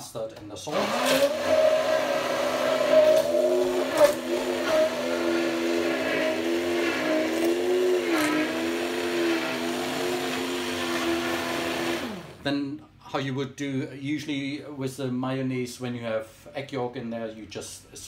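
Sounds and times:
stick blender motor whine: 0.7s - 12.4s.

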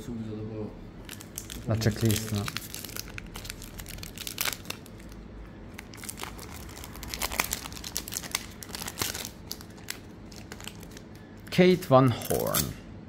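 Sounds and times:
trading cards rustling: 1.1s - 11.5s.

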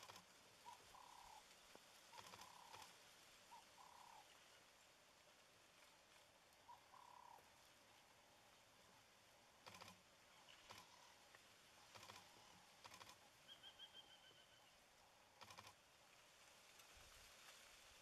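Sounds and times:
sharp clicks: 11.9s - 13.2s
bird calling high notes: 13.5s - 14.7s.

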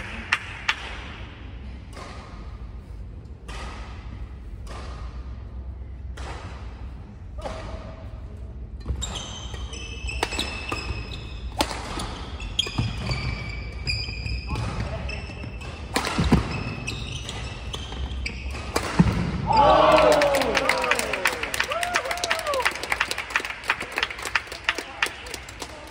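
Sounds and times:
racket hitting shuttlecock: 0.0s - 2.7s, 3.4s - 5.3s, 6.0s - 8.0s, 9.5s - 13.2s, 15.6s - 19.5s
shoes squeaking on court: 8.8s - 19.0s.

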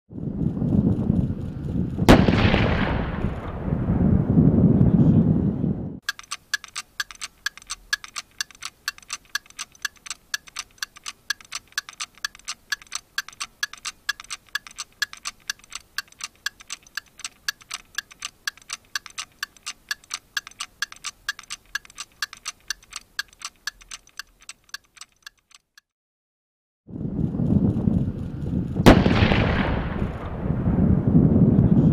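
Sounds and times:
clock ticking: 6.0s - 25.9s.

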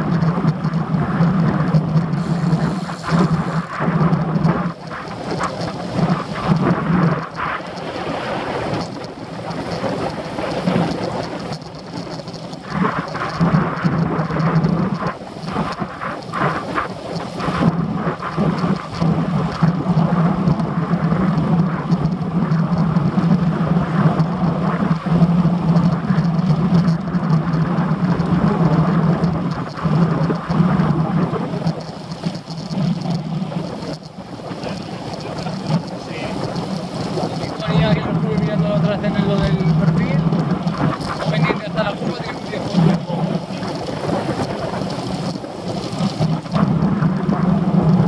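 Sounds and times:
steady low hum: 0.0s - 11.5s
wind buffeting microphone: 0.0s - 48.0s.

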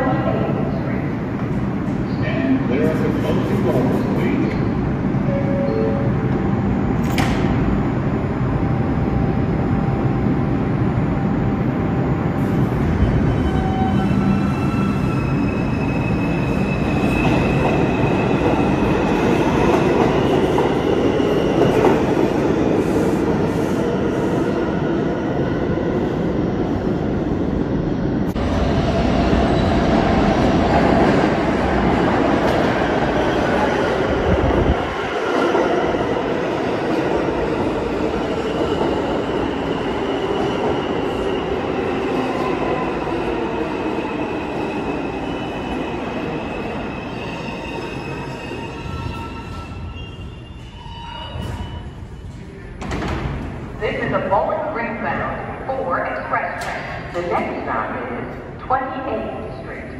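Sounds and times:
subway train rumbling on rails: 0.0s - 59.9s
squealing train wheels: 12.9s - 22.0s, 44.0s - 52.8s.

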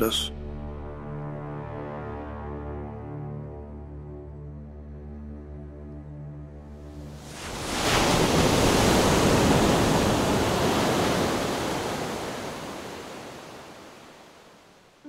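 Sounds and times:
ocean waves breaking: 7.0s - 15.0s.

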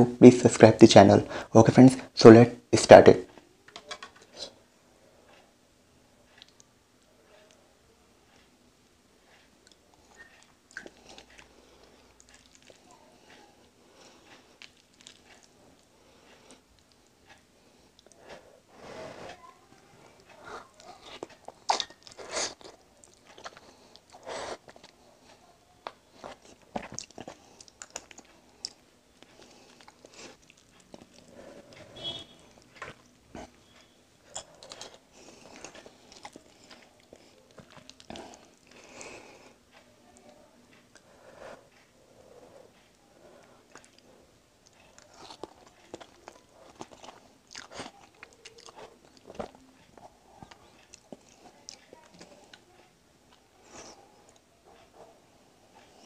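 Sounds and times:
wet chewing clicks: 9.6s - 13.0s, 14.0s - 17.1s, 20.2s - 25.0s, 25.8s - 31.4s, 32.5s - 39.1s, 43.4s - 52.7s.

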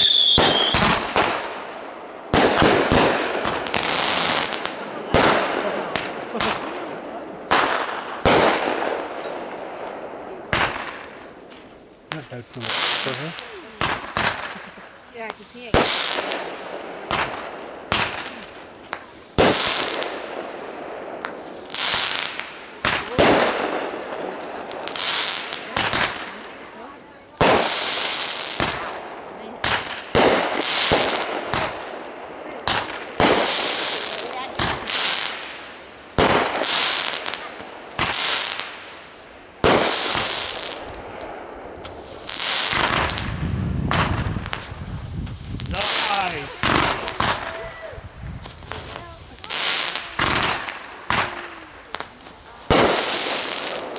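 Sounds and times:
fireworks bangs: 0.0s - 53.9s
fireworks crackling hiss: 0.0s - 53.9s.

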